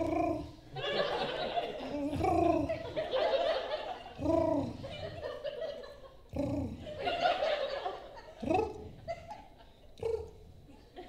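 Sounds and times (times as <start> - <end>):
laughter: 0.7 - 11.0
woman imitating gargling growl: 2.0 - 2.8, 4.2 - 4.9, 6.3 - 6.8.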